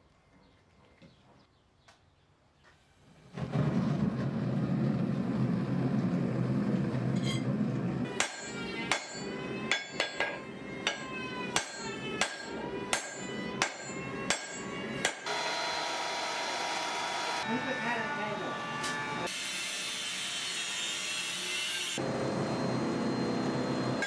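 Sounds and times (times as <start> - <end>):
hammer ringing on an anvil: 8.2 - 15.3.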